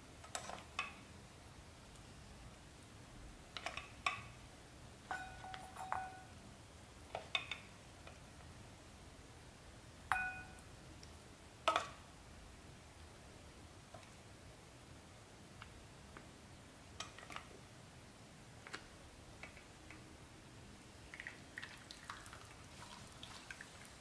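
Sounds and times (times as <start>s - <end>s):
tongs clinking on ceramic bowl: 5.1s - 6.3s, 10.1s - 10.6s.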